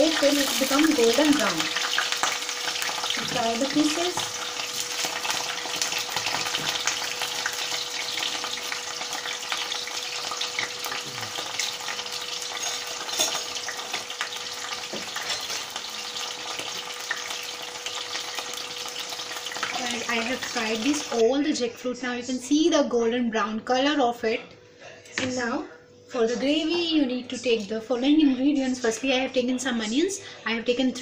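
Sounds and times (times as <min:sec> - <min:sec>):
food sizzling in hot oil: 0:00.0 - 0:21.4.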